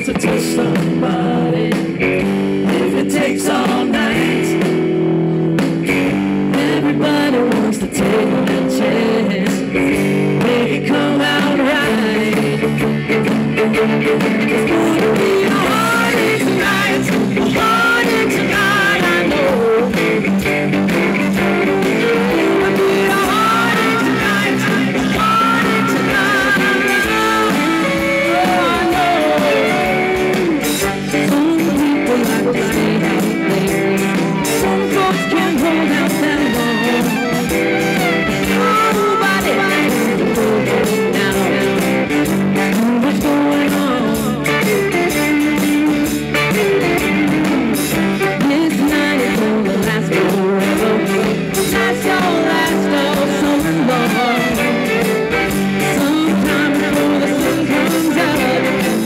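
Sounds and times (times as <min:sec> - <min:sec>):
live rock band playing: 0:00.0 - 0:59.0
fiddle: 0:20.7 - 0:43.5, 0:44.5 - 0:59.0.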